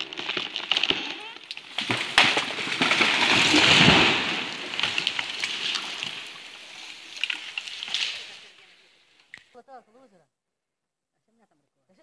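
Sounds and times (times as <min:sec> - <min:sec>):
tree trunk hitting ground: 0:00.0 - 0:08.6
tree crown rushing through branches: 0:00.0 - 0:08.8
branches snapping and rustling: 0:00.0 - 0:09.4.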